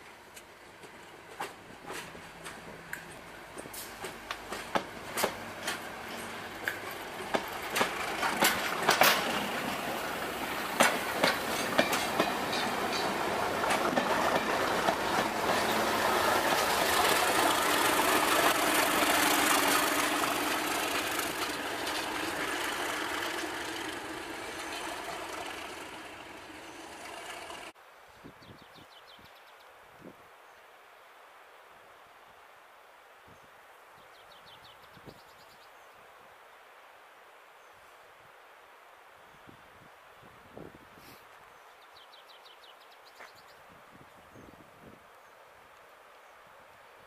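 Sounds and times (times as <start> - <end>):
wheels clicking over rail joints: 0.4 - 27.8
train wheels rushing on rail: 0.8 - 27.8.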